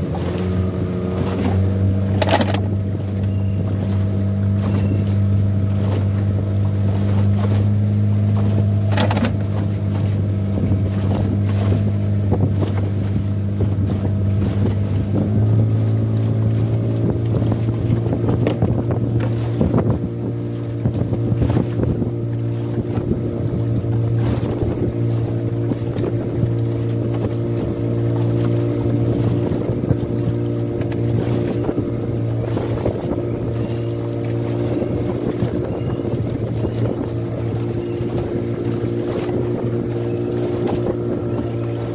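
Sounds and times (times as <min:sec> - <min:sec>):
hull knocking on waves: 0:00.0 - 0:41.9
outboard motor running: 0:00.0 - 0:41.9
wind noise on microphone: 0:00.0 - 0:41.9.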